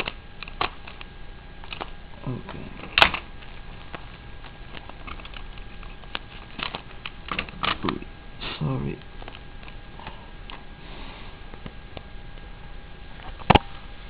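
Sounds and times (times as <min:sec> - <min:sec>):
bubble wrap and tape crinkling: 0:00.0 - 0:08.0, 0:08.7 - 0:10.6.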